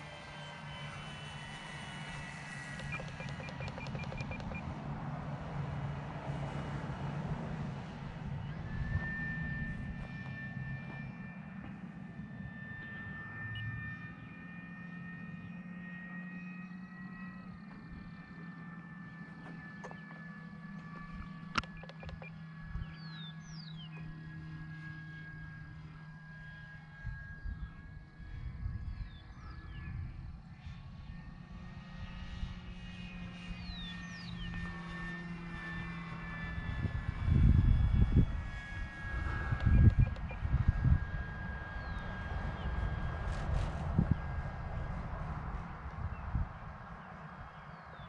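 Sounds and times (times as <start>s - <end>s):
model airplane motor whining: 0.0s - 5.6s, 6.4s - 48.0s.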